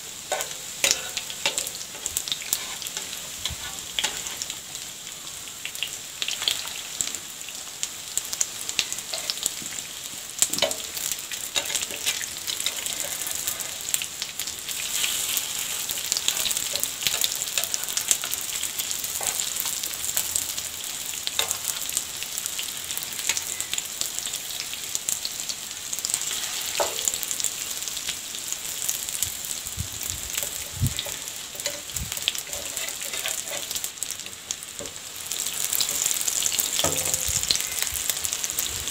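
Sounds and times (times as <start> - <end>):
chicken sizzling in hot oil: 0.0 - 38.9
knocks in pan: 36.8 - 37.5.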